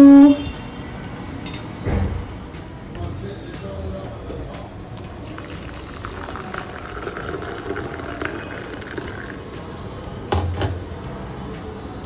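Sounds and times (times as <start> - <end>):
loud thump: 1.8 - 2.3
hot water pouring into mug: 5.0 - 9.5.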